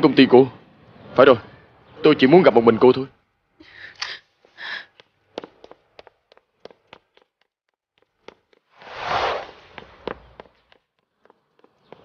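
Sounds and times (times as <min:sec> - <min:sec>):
footsteps clicking on hard floor: 0:04.9 - 0:08.9, 0:09.6 - 0:12.0
rushing whoosh: 0:08.8 - 0:09.8.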